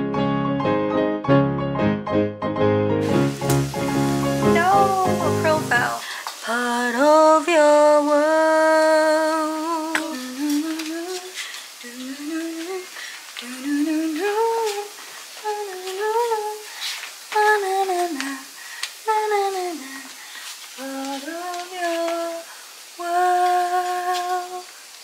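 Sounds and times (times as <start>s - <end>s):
woman humming a tune: 4.4s - 16.7s, 23.0s - 24.7s.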